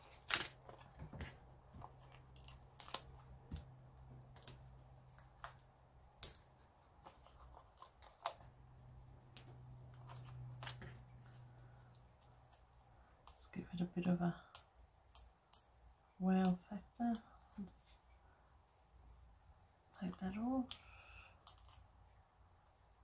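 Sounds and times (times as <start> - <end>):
paper rustling and clicking: 0.0 - 3.7, 9.4 - 11.5
low steady hum: 0.0 - 23.0.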